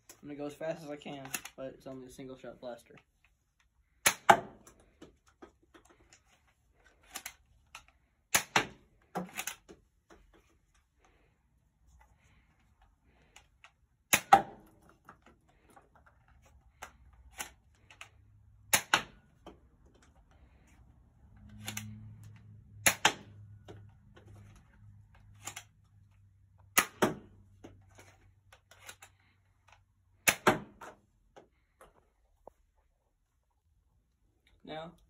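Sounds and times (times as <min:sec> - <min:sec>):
toy blaster firing snaps: 0:22.8 - 0:23.2.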